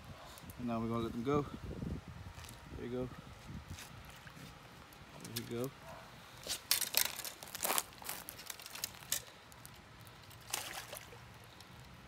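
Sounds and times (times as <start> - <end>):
water splashing: 10.4 - 11.4.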